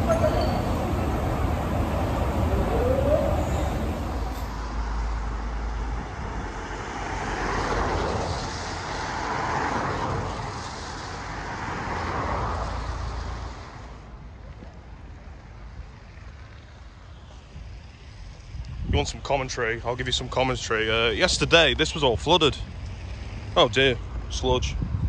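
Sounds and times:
cars passing on wet road: 0.0s - 18.8s.

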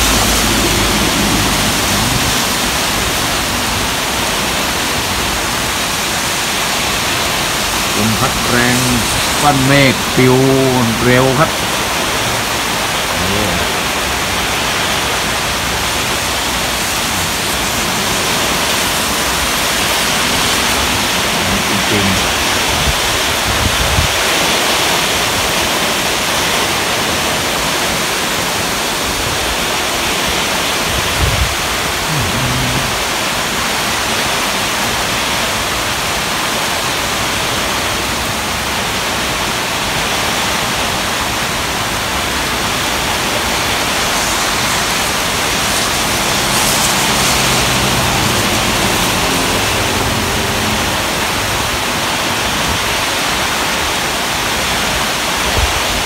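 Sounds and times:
heavy rain pouring: 0.0s - 56.0s
wind gusts hitting microphone: 11.5s - 24.6s, 29.1s - 33.2s.

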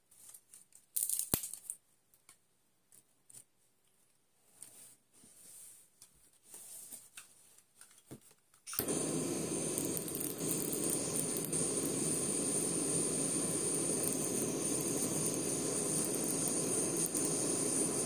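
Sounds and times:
steady hissing noise: 8.7s - 18.0s.

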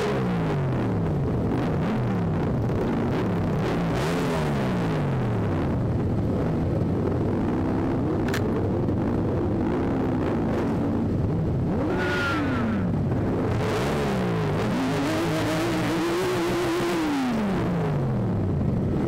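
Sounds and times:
motorcycle engines revving: 0.0s - 19.0s
sharp click: 8.2s - 8.5s.

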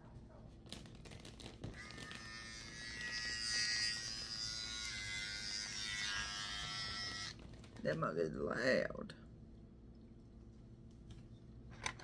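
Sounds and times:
hair trimmer buzzing: 1.8s - 7.4s.

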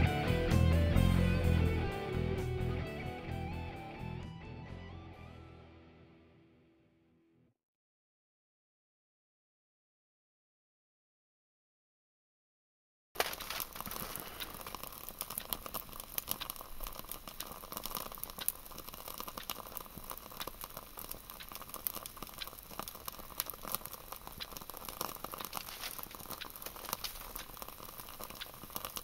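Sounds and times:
crackling and ticking: 13.2s - 29.0s
fuel block burning with hiss: 13.2s - 29.0s.

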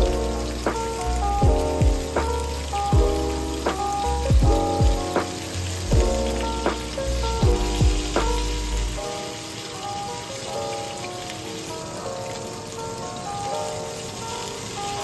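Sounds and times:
background music with kick drums: 0.0s - 9.0s.

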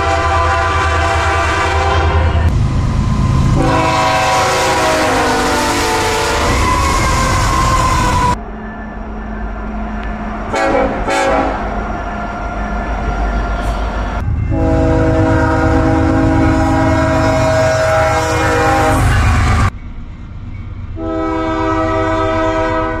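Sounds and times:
locomotive air horn: 0.0s - 2.5s, 3.2s - 8.4s, 10.5s - 11.8s, 13.4s - 19.7s, 21.0s - 23.0s
train rumbling: 0.0s - 23.0s.

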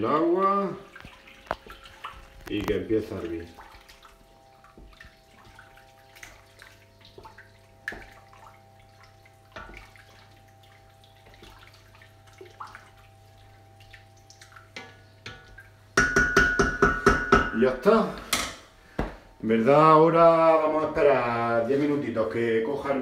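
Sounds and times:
faint sloshing: 0.0s - 23.0s
steady hum: 0.0s - 23.0s
spoon stirring in a pot: 3.8s - 13.8s, 14.4s - 17.6s
spoon knocking steel pot: 14.8s - 17.7s.

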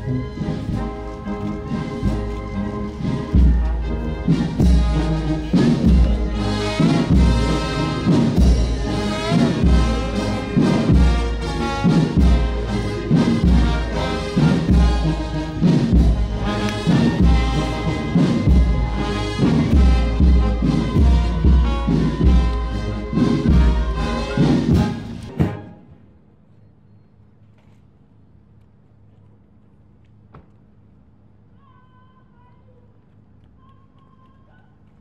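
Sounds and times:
brass band music: 0.0s - 26.1s
bass drum beating: 1.9s - 25.6s.

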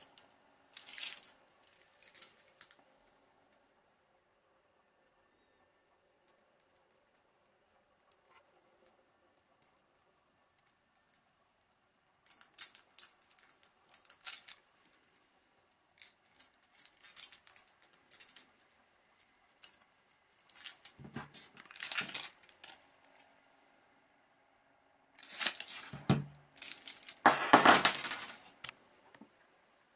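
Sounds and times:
metal keys clinking: 0.8s - 2.8s, 12.2s - 15.2s, 16.0s - 18.6s, 19.2s - 23.3s, 25.2s - 25.9s, 26.6s - 27.2s.

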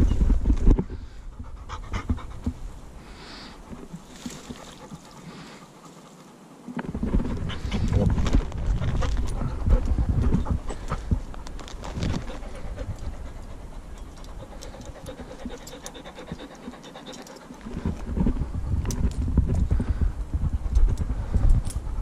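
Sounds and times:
puppy panting: 1.2s - 2.7s, 4.3s - 6.5s, 7.2s - 18.7s
bumps and rustling: 6.6s - 21.9s.

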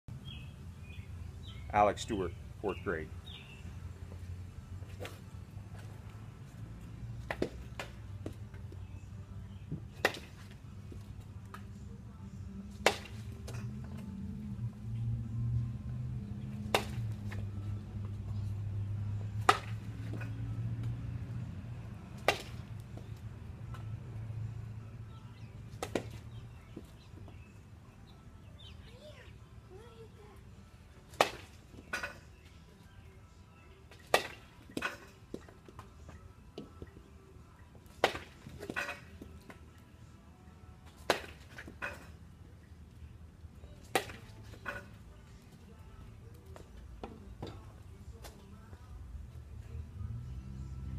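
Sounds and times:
baseball bat hitting balls: 4.8s - 6.2s, 6.8s - 11.8s, 12.7s - 14.4s, 16.2s - 24.1s, 25.4s - 27.5s, 31.0s - 32.4s, 33.9s - 39.7s, 40.8s - 42.3s, 43.7s - 45.7s, 46.3s - 48.9s
baseball bat cracking ball: 7.2s - 8.4s, 9.9s - 10.6s, 12.7s - 13.7s, 16.5s - 17.4s, 19.4s - 21.0s, 22.2s - 23.1s, 25.8s - 26.3s, 31.1s - 32.2s, 34.0s - 35.4s, 38.0s - 39.3s, 40.9s - 42.1s, 43.8s - 44.4s.

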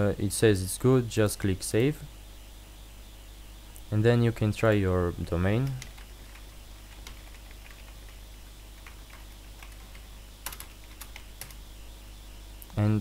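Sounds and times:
low electrical hum: 0.0s - 13.0s
typing on computer keyboard: 5.6s - 8.2s, 8.8s - 11.6s.

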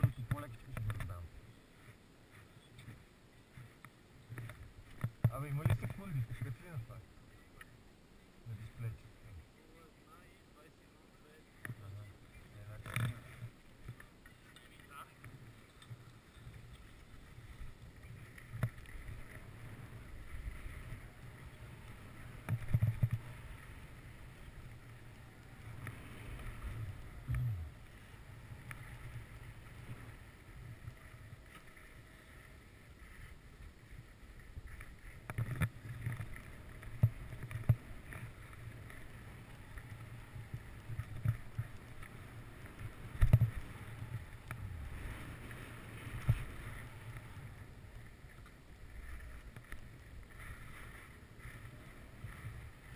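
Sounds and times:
skis scraping over snow: 8.4s - 52.9s
wind rumbling on microphone: 11.6s - 52.9s.

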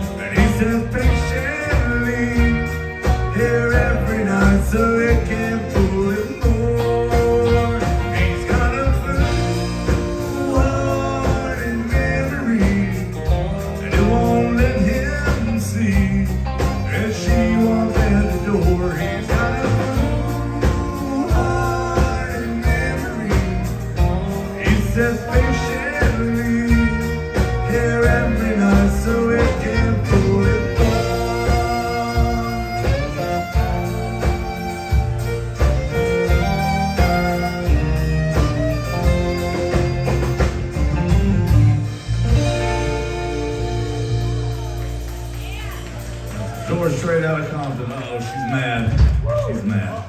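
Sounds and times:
live country band playing: 0.0s - 50.0s
fiddle: 30.0s - 41.0s.

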